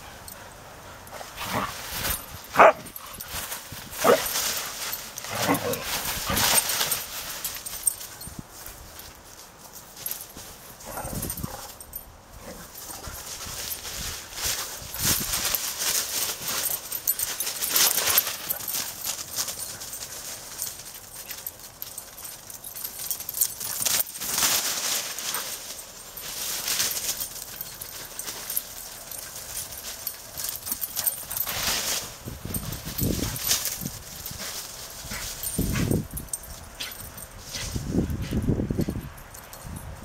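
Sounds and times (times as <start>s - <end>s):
leaves rustling and crunching: 1.3s - 11.7s, 12.4s - 38.7s
dog sounds: 2.5s - 3.2s.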